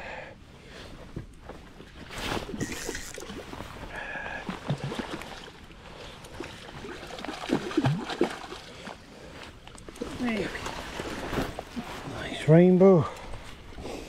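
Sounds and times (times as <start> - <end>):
fish splashing in water: 6.4 - 8.7.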